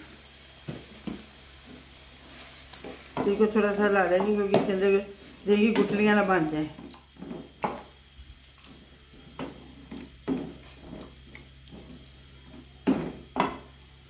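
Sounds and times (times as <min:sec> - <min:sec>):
wooden spoon scraping steel pot: 0:09.1 - 0:12.6.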